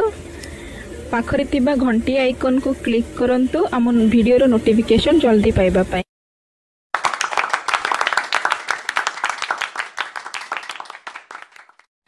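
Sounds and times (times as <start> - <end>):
many hands clapping: 7.0 - 11.9.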